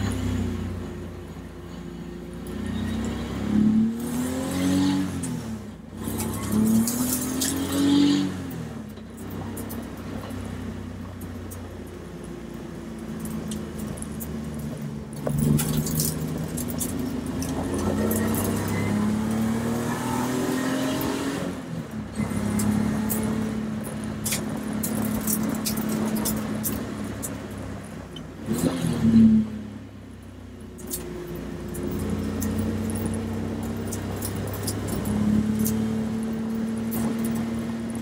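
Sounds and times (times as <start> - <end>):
race car engine revving: 2.4 - 9.8, 13.6 - 27.8
light rattles and clicks: 8.9 - 18.7, 22.6 - 28.3, 30.7 - 38.0.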